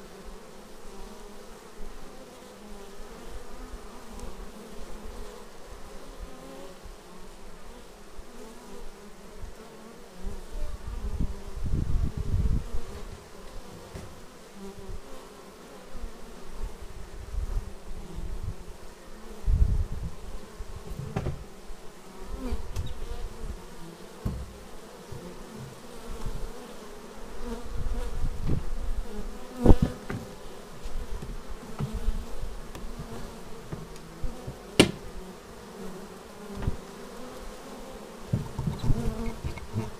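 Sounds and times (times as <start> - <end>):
bees buzzing: 0.0 - 39.9
sharp tap: 34.8 - 35.0.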